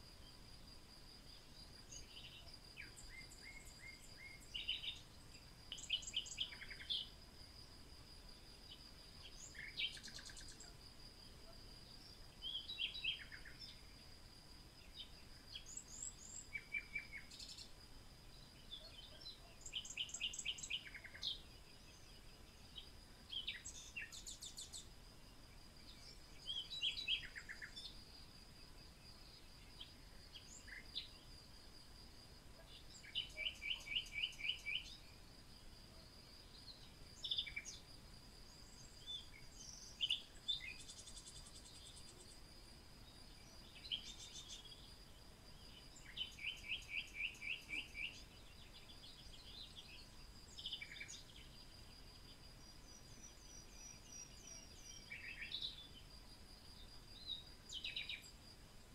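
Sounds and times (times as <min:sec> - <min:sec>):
birds chirping and trilling: 0:01.9 - 0:07.2, 0:18.5 - 0:24.9, 0:25.9 - 0:28.0, 0:32.6 - 0:35.1, 0:43.4 - 0:44.9, 0:45.6 - 0:51.6.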